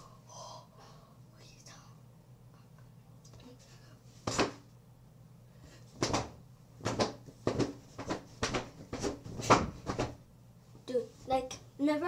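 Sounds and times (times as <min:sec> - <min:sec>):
quick knocks and rustles: 0:06.0 - 0:10.2.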